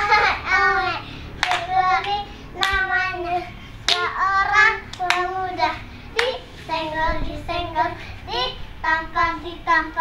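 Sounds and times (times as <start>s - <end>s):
hand claps: 1.4s - 2.9s, 3.9s - 4.1s, 4.9s - 5.3s.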